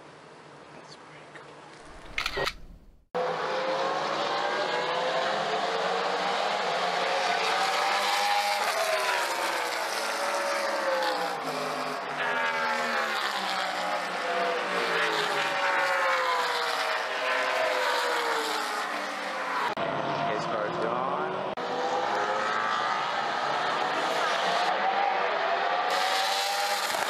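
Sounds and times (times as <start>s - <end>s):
race car engines at high revs: 1.8s - 27.0s.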